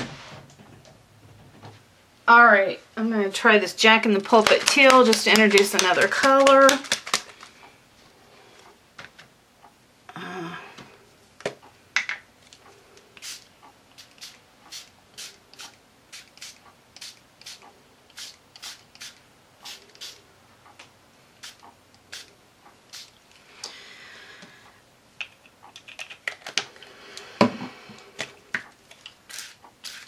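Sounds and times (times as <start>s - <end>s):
spray bottle hissing mist: 13.2s - 20.2s, 21.4s - 22.3s, 22.9s - 23.2s, 29.3s - 30.0s.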